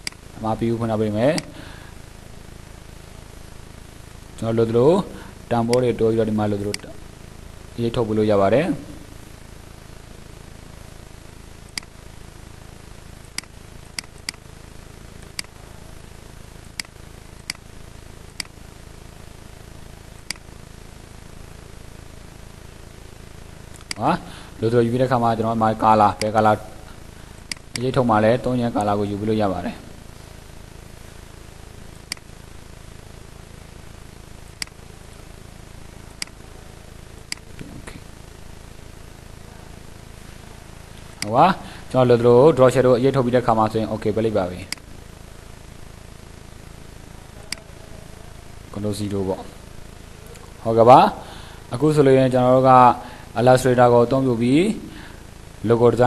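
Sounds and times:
computer mouse clicking: 0:00.0 - 0:00.2, 0:13.4 - 0:14.4, 0:16.8 - 0:17.6, 0:18.4 - 0:18.6, 0:27.4 - 0:27.8, 0:32.1 - 0:32.3, 0:37.3 - 0:37.6
low hum and hiss: 0:00.0 - 0:56.0.

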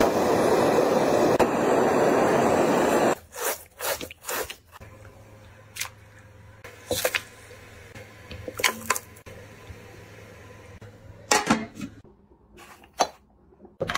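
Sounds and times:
blowtorch flame roaring: 0:00.0 - 0:03.2.

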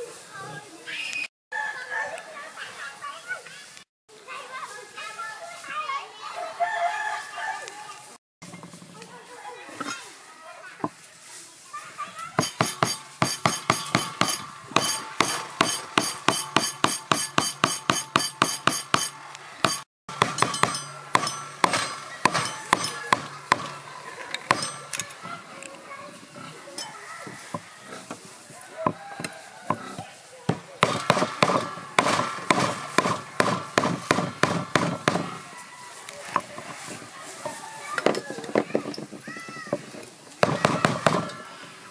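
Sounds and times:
cleaver striking chopping board: 0:12.4 - 0:25.0, 0:30.5 - 0:35.4.

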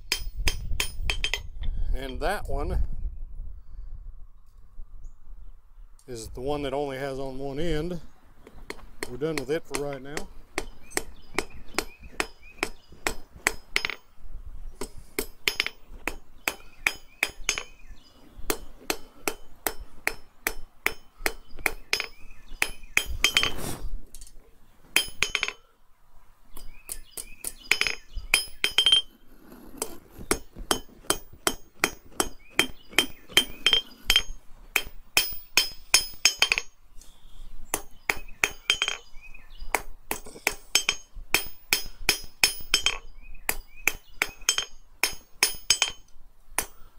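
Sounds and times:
hammer ringing on anvil: 0:40.7 - 0:43.1.

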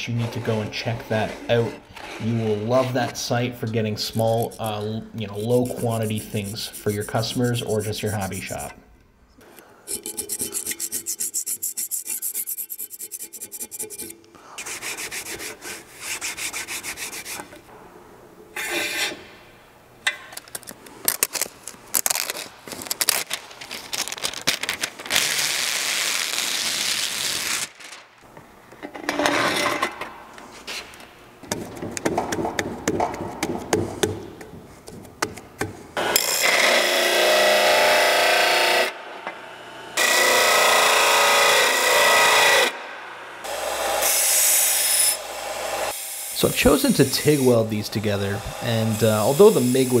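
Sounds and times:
peel-off sheet rustling: 0:20.4 - 0:28.2.

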